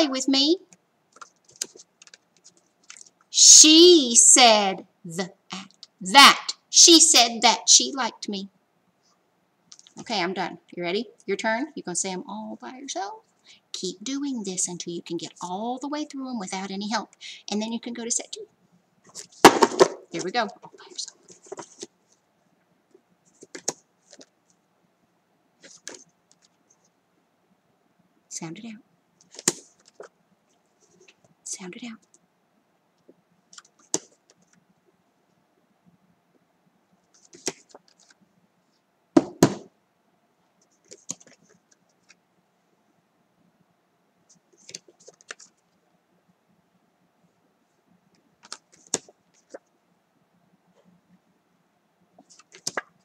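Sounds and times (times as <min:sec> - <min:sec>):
paper cards shuffling: 0:01.1 - 0:03.3, 0:19.1 - 0:22.0, 0:23.3 - 0:24.6, 0:25.6 - 0:26.6, 0:29.2 - 0:30.1, 0:37.1 - 0:38.2, 0:40.7 - 0:42.2, 0:44.3 - 0:45.6, 0:48.4 - 0:49.7, 0:52.2 - 0:53.0.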